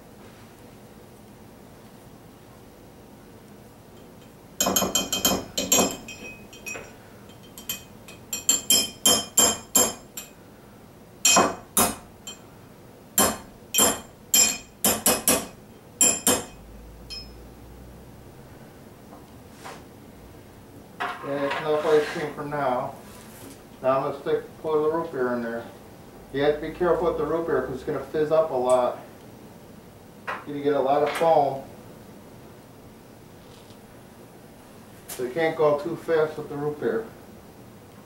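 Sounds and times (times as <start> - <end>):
metal spoon clinking on glass mug: 4.2 - 10.4, 13.8 - 15.3, 16.0 - 17.4.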